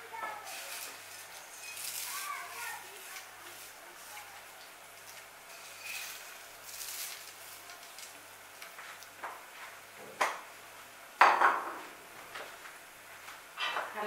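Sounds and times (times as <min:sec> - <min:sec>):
spoon scraping pot: 0:05.5 - 0:07.2.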